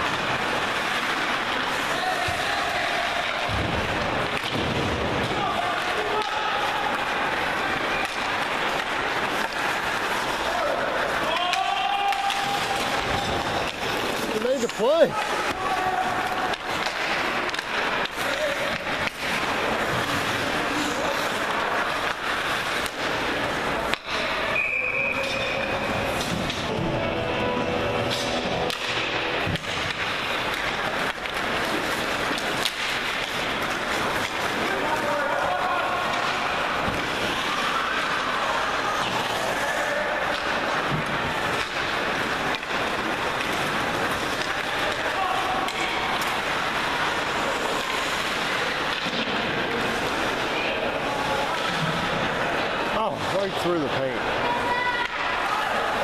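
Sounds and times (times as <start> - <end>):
hockey sticks and puck knocking: 0.0 - 53.6
ice rink ambience: 0.0 - 56.0
referee's whistle: 24.5 - 25.7.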